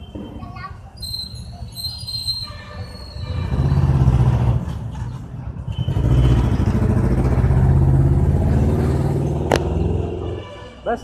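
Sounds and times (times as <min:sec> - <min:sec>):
vehicle engine rumbling: 0:03.2 - 0:10.8.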